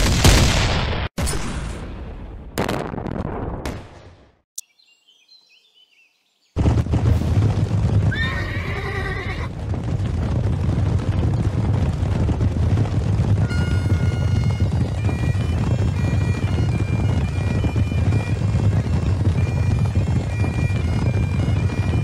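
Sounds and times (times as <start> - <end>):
faint bird chirps: 4.6 - 6.6
galloping horses' hooves: 6.6 - 22.0
horse whinny: 8.1 - 9.5
bagpipes playing: 13.5 - 22.0.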